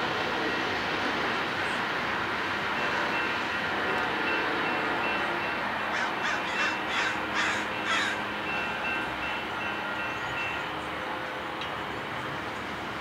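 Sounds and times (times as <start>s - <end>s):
crows cawing: 5.9s - 8.3s.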